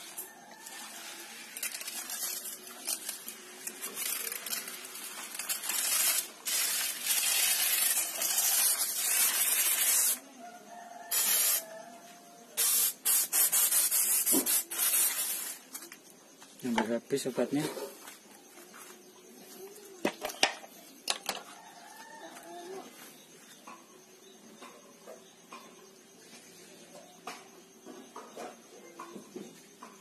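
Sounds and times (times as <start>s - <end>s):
trigger sprayer hissing sprays: 0.8s - 10.2s, 11.1s - 11.6s, 12.6s - 15.6s.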